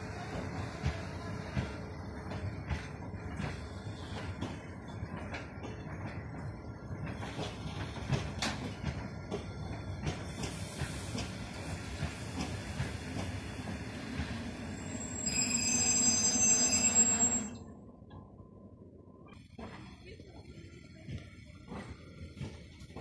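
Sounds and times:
train wheels clattering on rails: 0.0 - 15.8
metal-on-metal squeal: 14.8 - 17.5.

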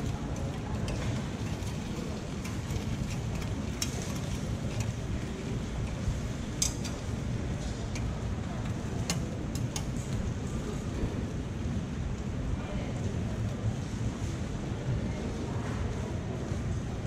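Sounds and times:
metal picks clicking on pan: 6.6 - 6.9.

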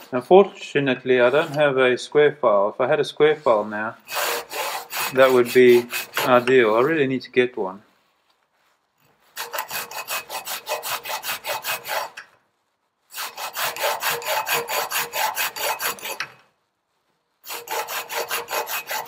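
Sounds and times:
metal file rasping on metal: 4.0 - 7.0, 9.3 - 12.4, 13.1 - 16.4, 17.4 - 19.0.

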